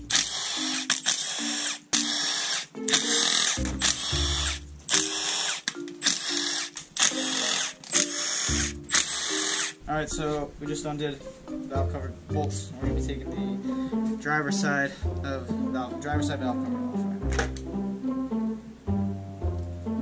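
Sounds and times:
power driver whining in bursts: 0:00.0 - 0:09.8.

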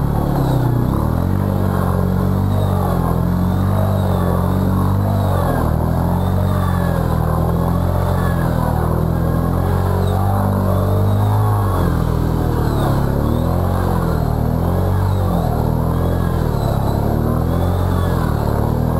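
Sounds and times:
atv engine under throttle: 0:00.0 - 0:18.9.

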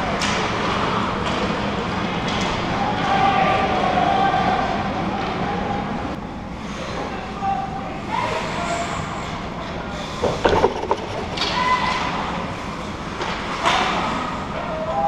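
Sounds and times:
stick and puck knocks: 0:10.2 - 0:11.8.

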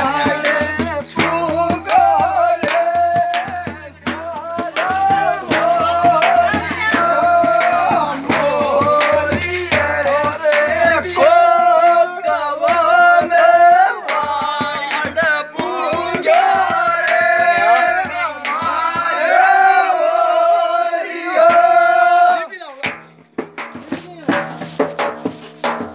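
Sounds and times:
person singing long held notes: 0:00.0 - 0:18.9
drum beats: 0:00.0 - 0:25.9.

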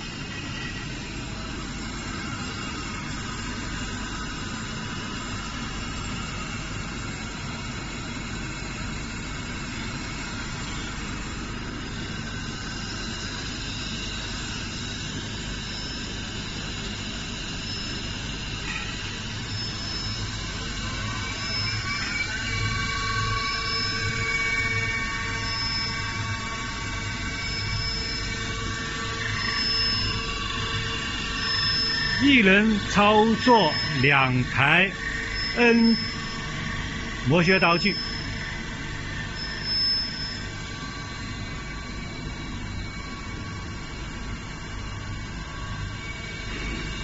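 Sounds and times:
machine whining tones: 0:00.0 - 0:47.0
machinery hum: 0:00.0 - 0:47.0.

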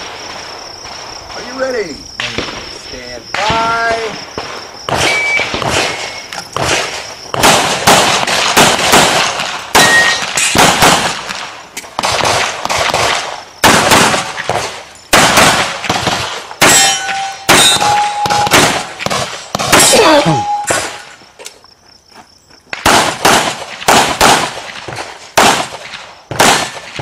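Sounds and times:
pistol shots: 0:03.3 - 0:21.1, 0:22.7 - 0:27.0
metallic target ringing: 0:09.8 - 0:10.3, 0:16.6 - 0:18.6, 0:19.9 - 0:21.1.

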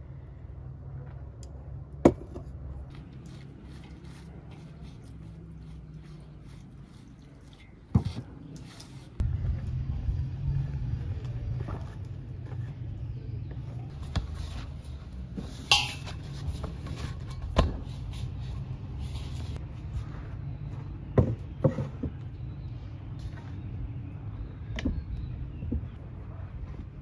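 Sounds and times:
steady low rumble: 0:09.2 - 0:13.9
knocks and clinks of bowl: 0:15.7 - 0:16.1.

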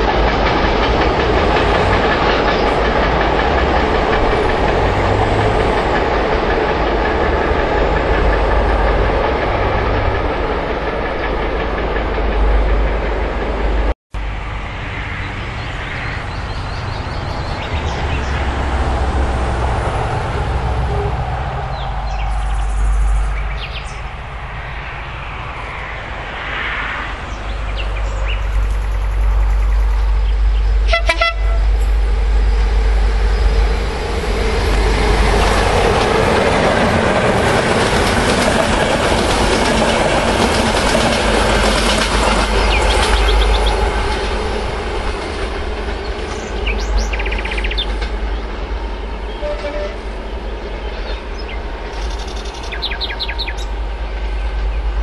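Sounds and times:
train wheels rushing on rails: 0:00.0 - 0:55.0
train horn blast: 0:30.8 - 0:31.9, 0:49.3 - 0:50.2.

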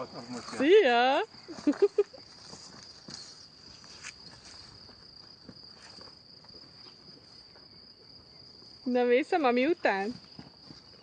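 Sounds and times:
crickets trilling: 0:00.0 - 0:11.0
soft rustles: 0:01.4 - 0:07.5.

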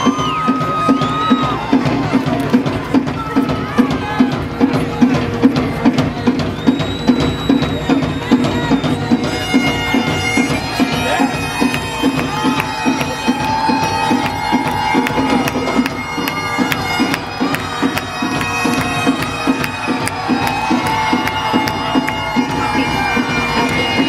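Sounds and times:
drums beating: 0:00.0 - 0:24.0
bagpipes playing: 0:09.0 - 0:24.0.

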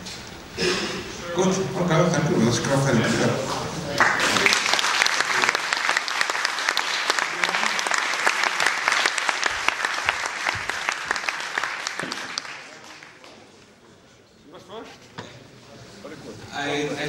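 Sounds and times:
audience applauding: 0:04.0 - 0:13.6.

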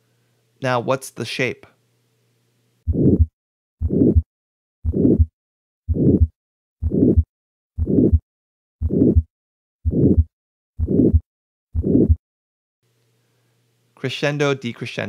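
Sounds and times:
harsh heart murmur: 0:02.9 - 0:05.3, 0:05.9 - 0:12.2
heartbeat through stethoscope: 0:02.9 - 0:05.3, 0:05.9 - 0:12.2.

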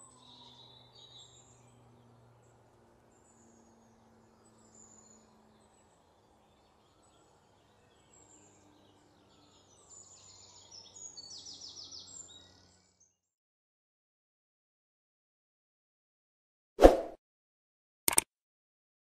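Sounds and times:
birds chirping: 0:00.0 - 0:13.1.

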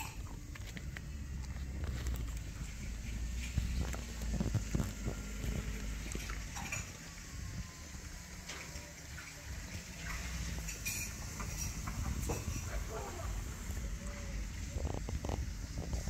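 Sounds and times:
dog chewing and crunching bread: 0:00.0 - 0:07.2.

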